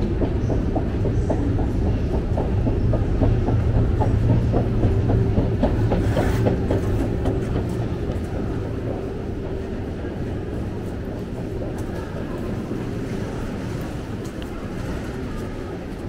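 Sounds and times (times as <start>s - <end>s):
escalator steps clacking: 0.0s - 9.8s
escalator rumbling: 0.0s - 16.0s.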